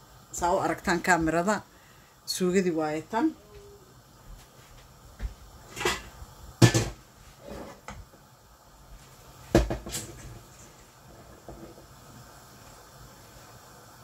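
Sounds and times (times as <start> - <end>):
kitchen knocks and clunks: 5.7 - 7.0, 9.5 - 10.2.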